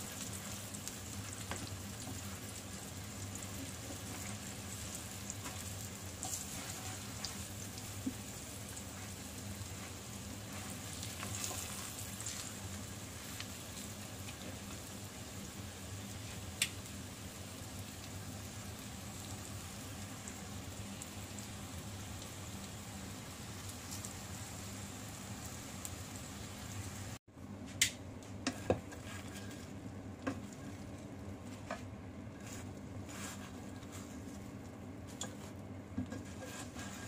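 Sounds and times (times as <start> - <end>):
meat sizzling in oil: 0.0 - 27.2.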